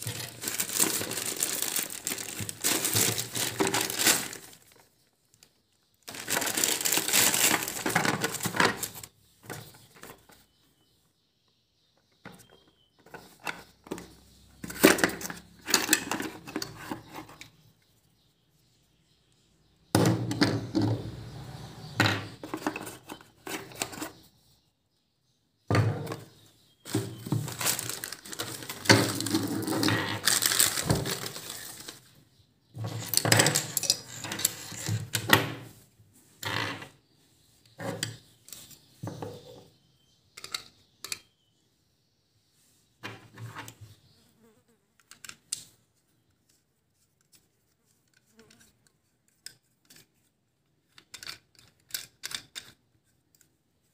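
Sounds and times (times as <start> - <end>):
plastic parts clicking and rattling: 0.0 - 10.3, 12.2 - 17.5, 22.2 - 24.2, 26.9 - 32.0, 32.8 - 35.7, 45.0 - 45.8, 48.0 - 53.6.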